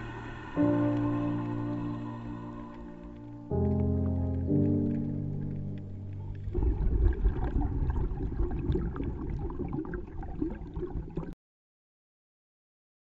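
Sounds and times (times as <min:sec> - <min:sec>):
soft background music: 0:00.0 - 0:07.4
rough rumbling noise with crackles: 0:00.0 - 0:11.4.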